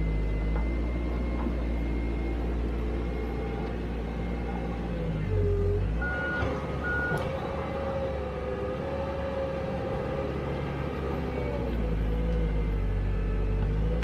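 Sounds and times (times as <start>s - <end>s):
bulldozer diesel engine under load: 0.0s - 14.0s.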